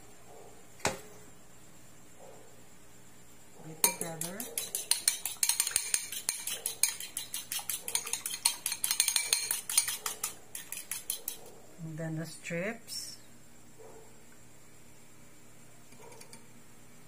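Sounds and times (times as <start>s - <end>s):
fork clinking against bowl: 3.8s - 11.5s.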